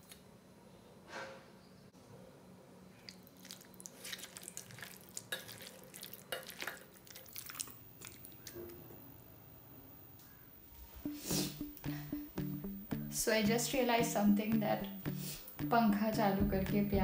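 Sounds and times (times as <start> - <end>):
hand squishing wet meat: 3.2 - 8.6.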